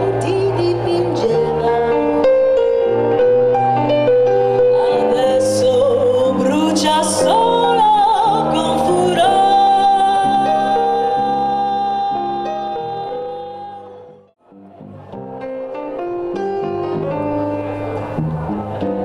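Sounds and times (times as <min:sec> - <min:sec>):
woman singing jazz: 0:00.0 - 0:02.2, 0:04.8 - 0:14.1.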